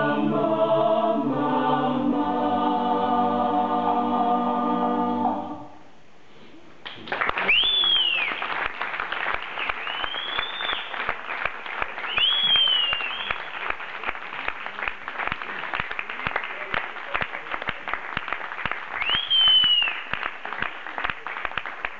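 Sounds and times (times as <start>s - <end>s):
audience applauding: 6.8s - 21.9s.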